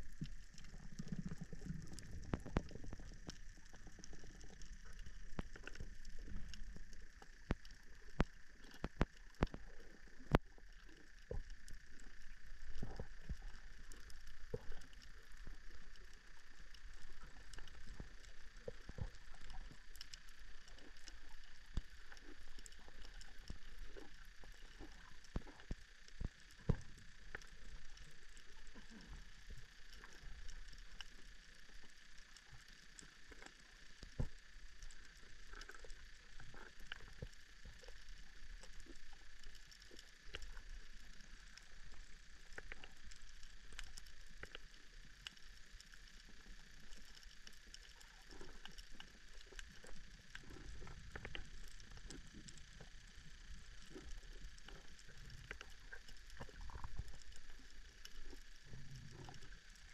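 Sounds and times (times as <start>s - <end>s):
underwater clicks and pops: 0.2s - 3.4s.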